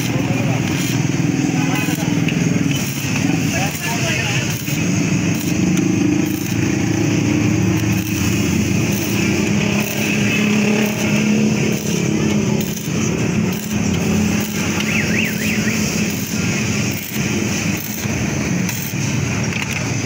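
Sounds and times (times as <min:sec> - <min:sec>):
welding arc crackling: 0:00.0 - 0:20.0.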